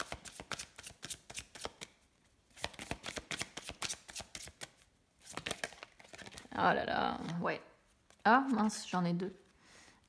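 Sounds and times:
cards being shuffled by hand: 0.0 - 6.5.

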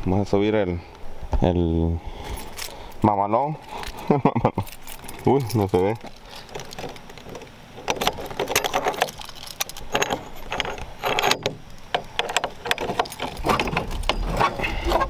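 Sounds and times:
keys jangling and clinking: 4.6 - 11.5, 12.1 - 15.0
rubbing against microphone: 13.2 - 15.0.

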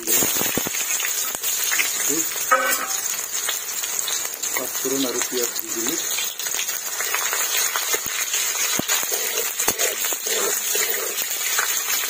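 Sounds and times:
onions sizzling in hot oil: 0.0 - 12.0
metal spatula clinking on pan: 2.5 - 3.0.

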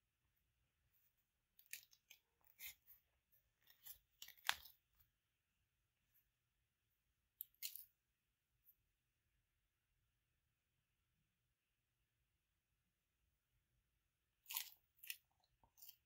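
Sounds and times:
hands tearing flatbread: 3.6 - 4.9.

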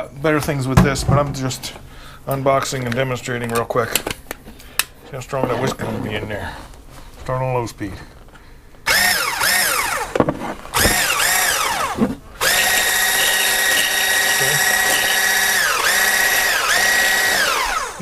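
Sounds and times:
hand blender motor whining: 8.9 - 18.0.

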